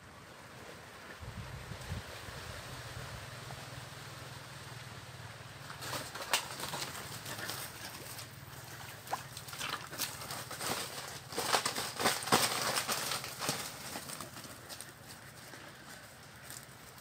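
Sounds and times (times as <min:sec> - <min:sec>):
footsteps crunching dry leaves: 0:05.6 - 0:17.0.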